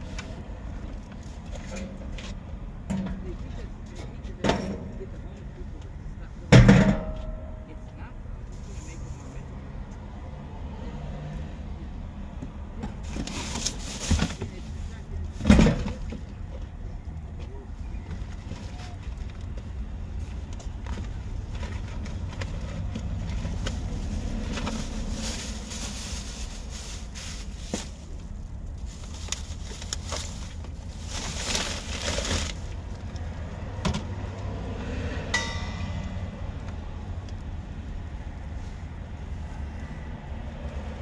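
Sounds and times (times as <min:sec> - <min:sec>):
street traffic rumble: 0:00.0 - 0:41.0
plastic bags rustling: 0:13.0 - 0:15.4, 0:21.4 - 0:33.2.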